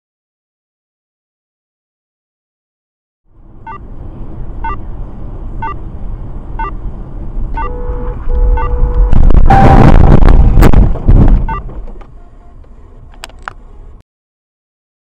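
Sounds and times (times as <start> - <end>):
car road and engine rumble: 3.3 - 14.0
short electronic beeps: 3.6 - 3.8, 4.6 - 4.8, 6.6 - 6.8, 7.6 - 10.2, 11.5 - 11.7
steady electronic tone: 7.6 - 10.6.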